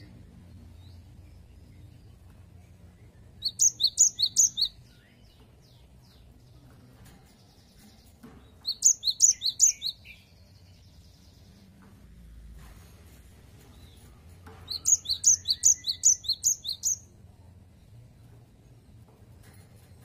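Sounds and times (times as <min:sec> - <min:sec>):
bird singing high sharp notes: 0:03.4 - 0:05.1, 0:08.7 - 0:10.4, 0:14.7 - 0:17.1.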